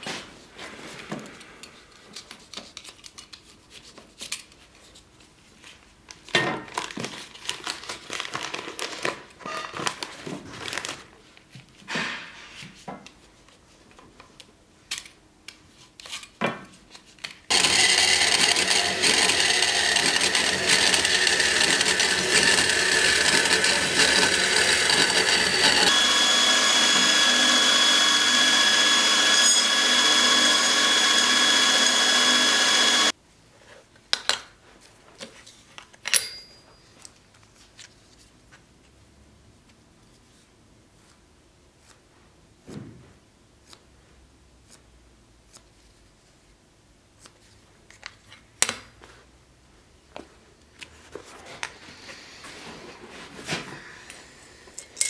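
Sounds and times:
power tool running: 17.5 - 33.1.

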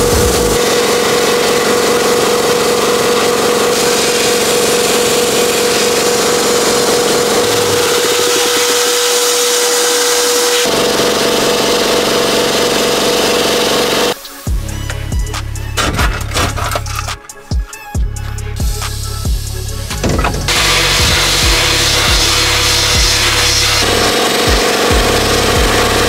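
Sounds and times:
steady hum: 0.0 - 2.2, 3.3 - 10.8
blast gun hissing: 18.8 - 23.9.

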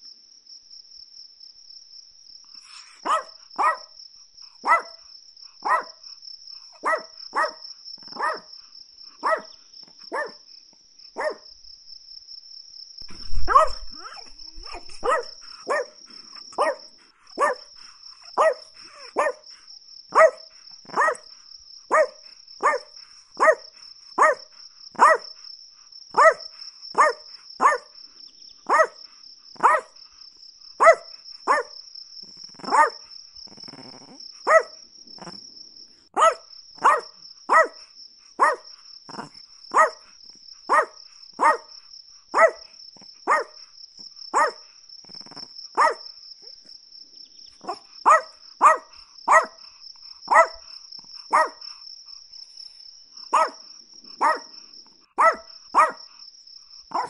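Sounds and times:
small dog yapping: 2.7 - 3.9, 4.6 - 5.0, 5.6 - 5.9, 6.8 - 8.5, 9.2 - 9.5, 10.1 - 10.4, 11.2 - 11.4, 13.1 - 17.7, 18.3 - 19.4, 20.1 - 21.3, 21.9 - 23.6, 24.2 - 24.4, 25.0 - 25.2, 26.2 - 26.4, 27.0 - 27.9, 28.7 - 29.0, 29.6 - 29.9, 30.8 - 31.7, 32.5 - 33.0, 33.6 - 35.4, 36.2 - 37.8, 38.4 - 40.0, 40.7 - 41.7, 42.4 - 42.7, 43.3 - 43.6, 44.3 - 44.6, 45.3 - 46.0, 47.6 - 49.6, 50.3 - 50.6, 51.3 - 51.6, 53.3 - 53.6, 54.2 - 54.5, 55.2 - 56.0.

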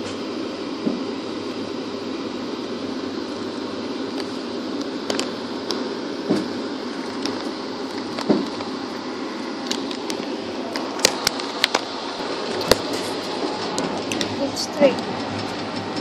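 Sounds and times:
train rumble inside coach: 0.0 - 16.0
sharp clicks and knocks: 13.6 - 16.0.

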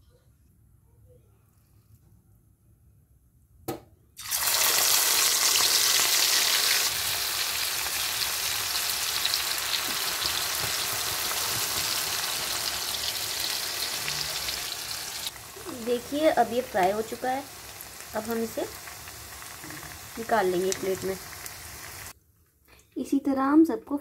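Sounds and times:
prawns sizzling in hot oil: 4.2 - 22.2.

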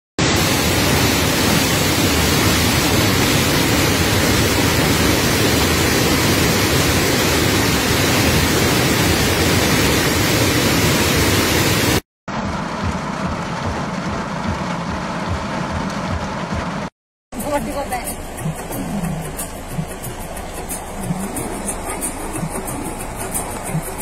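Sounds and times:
roar of rushing floodwater: 0.2 - 12.0.

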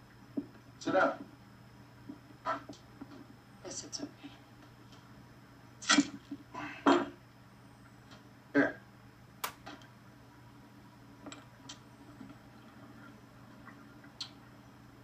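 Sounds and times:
sharp click: 9.4 - 9.8.

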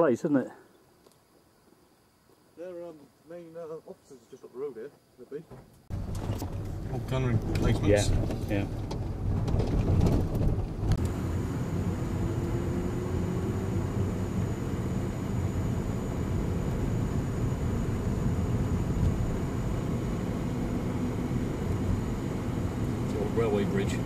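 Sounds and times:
car engine and tyre rumble: 5.9 - 24.0.

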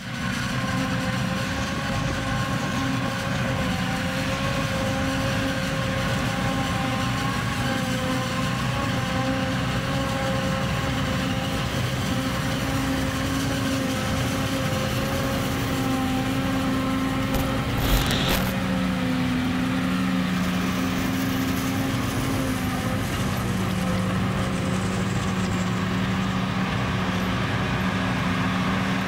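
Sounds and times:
forage harvester engine whine: 0.0 - 29.0
truck driving: 10.6 - 29.0.

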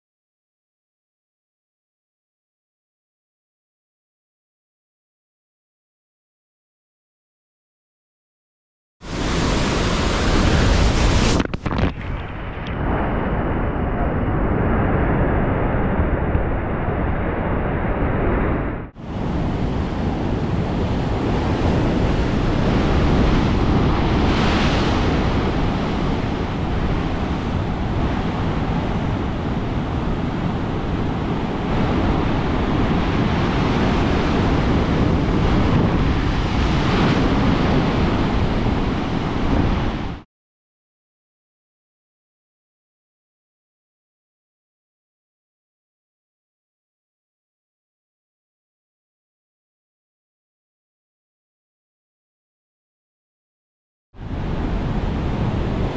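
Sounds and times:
wind rumbling on microphone: 9.0 - 40.2, 54.2 - 55.9
surf crashing against seawall: 9.1 - 16.3, 19.1 - 40.2.

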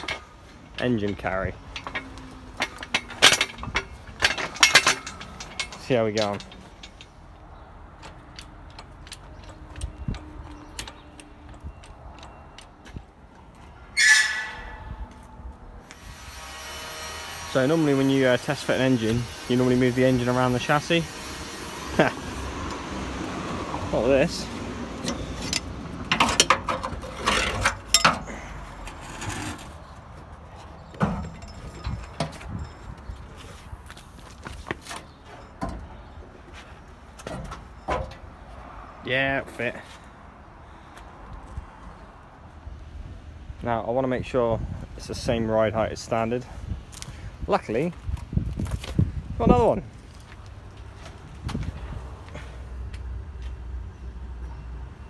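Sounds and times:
metal knocks: 0.0 - 7.2
metal parts clanking and rattling: 0.0 - 7.4, 25.0 - 29.6, 30.9 - 33.3
high squeal: 13.9 - 15.2.

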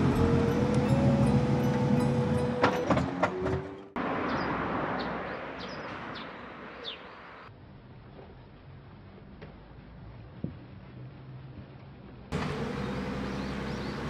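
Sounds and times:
vehicle engine humming: 0.0 - 14.0
bird chirps: 4.3 - 7.5, 12.8 - 14.0.

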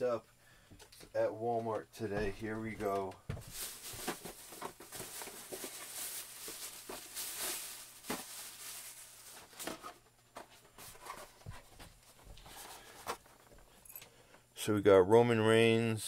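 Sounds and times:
plastic bag rustling: 2.4 - 11.5.

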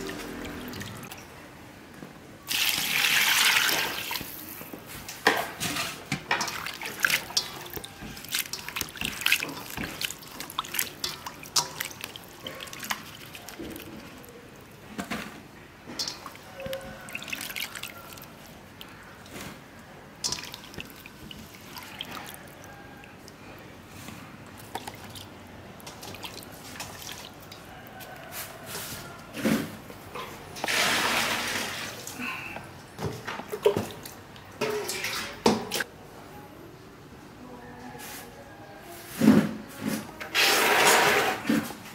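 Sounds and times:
water rushing: 0.0 - 1.2
water splashing and dripping: 0.0 - 1.3, 2.5 - 4.6, 5.2 - 23.5, 24.4 - 28.3.

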